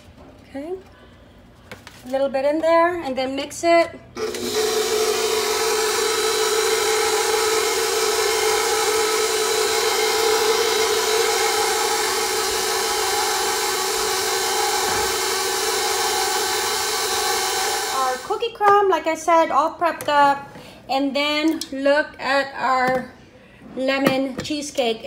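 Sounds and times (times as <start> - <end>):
stand mixer motor humming: 4.2 - 18.3.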